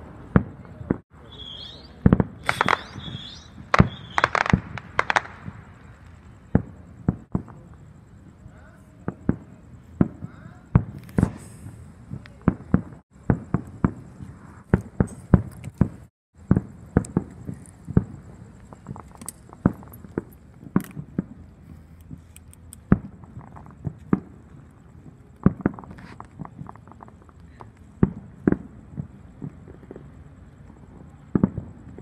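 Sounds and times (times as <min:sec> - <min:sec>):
fireworks bangs and pops: 0:00.0 - 0:07.9, 0:08.9 - 0:32.0.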